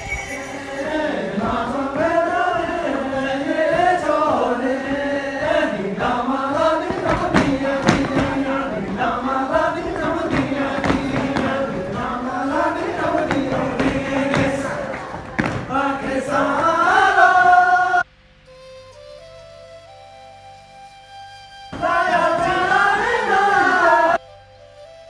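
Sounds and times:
men singing chant-like song: 0.4s - 18.0s, 21.8s - 24.2s
knocks from dancers' steps: 1.4s - 16.2s.

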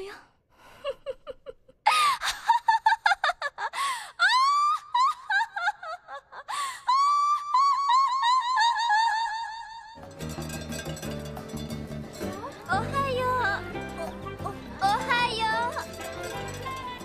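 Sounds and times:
woman laughing high-pitched: 0.8s - 7.5s
woman gasping inhales: 6.5s - 6.9s.

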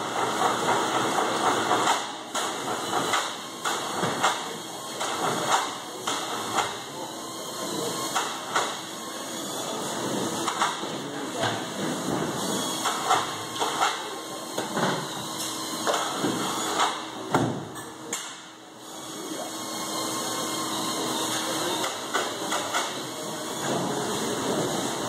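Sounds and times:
factory noise hiss: 0.0s - 7.1s.

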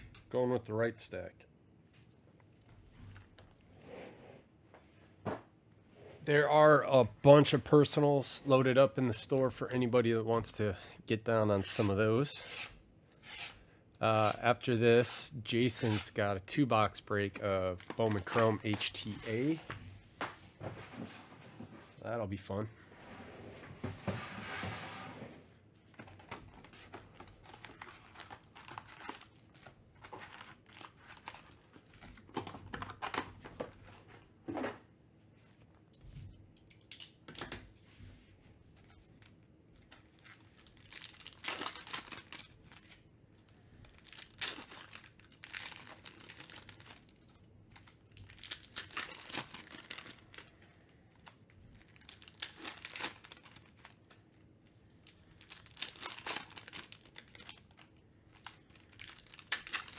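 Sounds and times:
foil packs crinkling and tearing: 17.7s - 19.7s, 26.6s - 32.3s, 40.2s - 59.9s.

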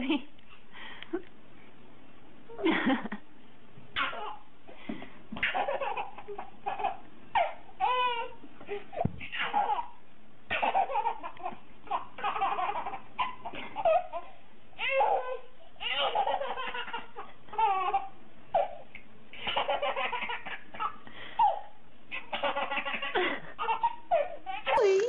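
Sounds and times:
baby laughing: 4.0s - 4.4s, 5.4s - 18.8s, 19.4s - 25.0s.

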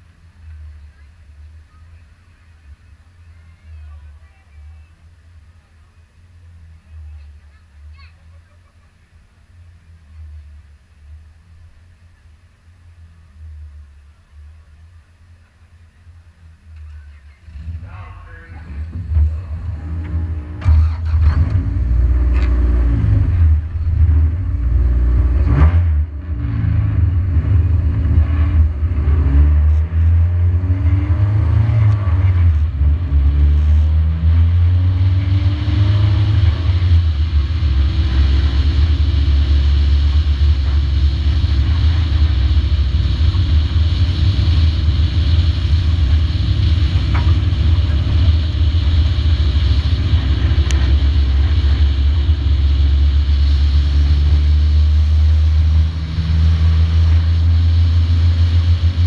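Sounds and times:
race car engine rumble: 0.0s - 59.0s
rushing hiss: 36.0s - 59.0s.

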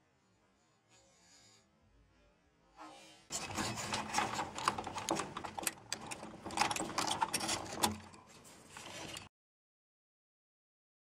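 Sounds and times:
plastic clicks and rattles: 3.4s - 9.3s.

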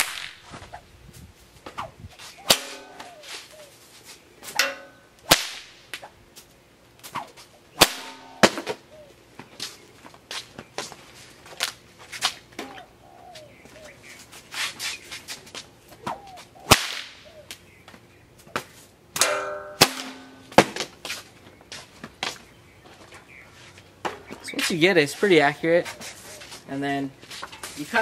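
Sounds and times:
bullwhip cracking: 0.0s - 0.8s, 1.6s - 3.6s, 4.5s - 6.2s, 7.0s - 8.8s, 16.0s - 17.3s.

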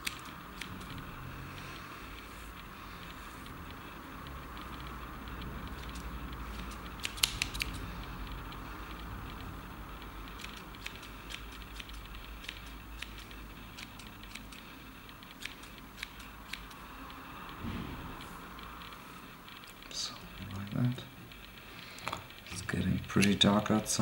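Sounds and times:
scissors snipping fibers: 0.0s - 1.2s, 5.7s - 8.6s, 10.2s - 17.6s.

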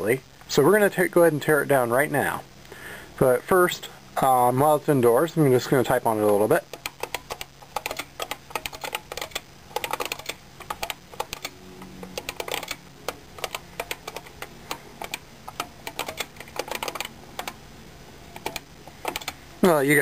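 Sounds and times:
clicky keyboard typing: 6.7s - 17.6s, 18.4s - 19.4s.

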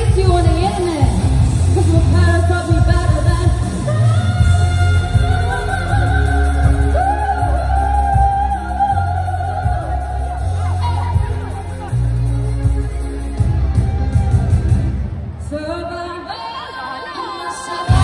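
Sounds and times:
woman singing into microphone: 0.0s - 11.5s, 15.4s - 18.0s
amplified pop music: 0.0s - 18.0s.

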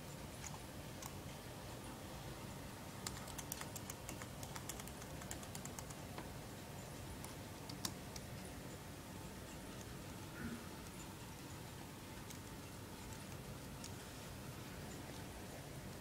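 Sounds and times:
computer keyboard typing: 3.0s - 6.3s, 7.2s - 8.3s, 12.1s - 14.0s.

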